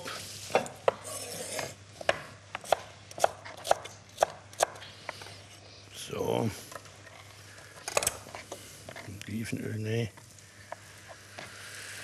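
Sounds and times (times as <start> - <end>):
knife chopping on wooden board: 2.0 - 4.8.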